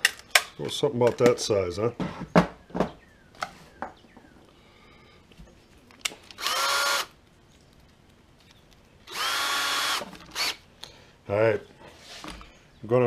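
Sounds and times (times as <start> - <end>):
cordless drill motor whine: 6.4 - 7.1, 9.1 - 10.6.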